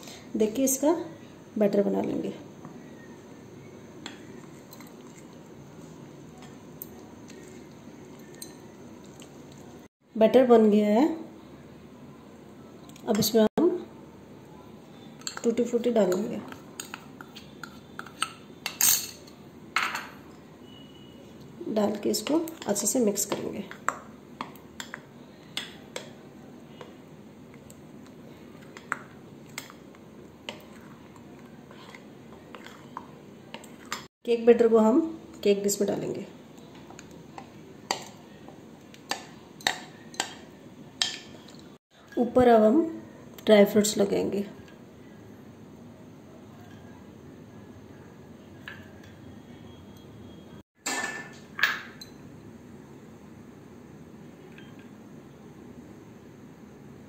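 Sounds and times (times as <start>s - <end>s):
spoon stirring thick batter: 21.9s - 34.0s.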